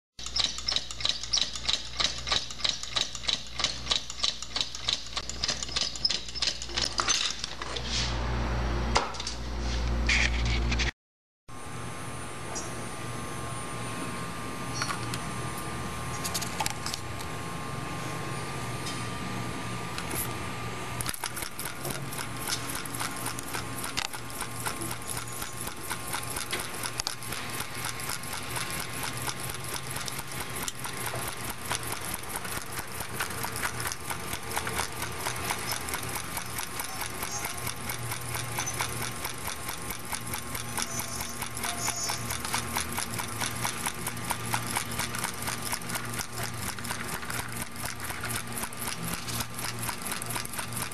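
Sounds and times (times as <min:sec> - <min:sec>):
engine linkage clicking rapidly: 0:00.2 - 0:07.0, 0:21.0 - 0:50.9.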